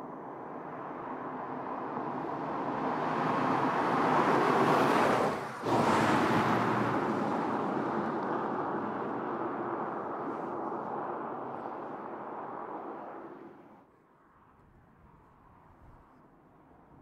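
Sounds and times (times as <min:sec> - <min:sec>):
car driving past: 0:01.1 - 0:13.8.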